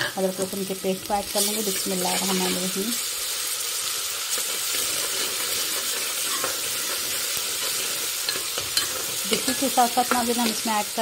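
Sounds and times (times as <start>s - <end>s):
onions sizzling in hot oil: 0.0s - 11.0s
spoon stirring against pan: 4.3s - 10.7s.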